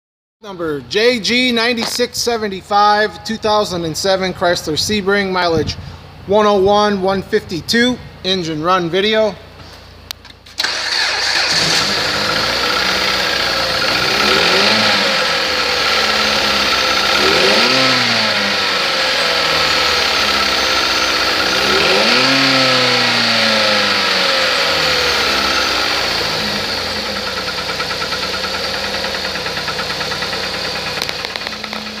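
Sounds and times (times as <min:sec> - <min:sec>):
car engine starting and revving: 0:10.6 - 0:32.0.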